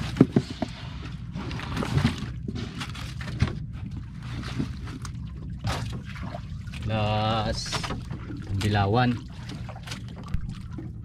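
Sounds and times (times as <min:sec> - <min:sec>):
steady low rumble: 0:00.0 - 0:11.0
wet fish slapping and knocking: 0:00.0 - 0:11.0.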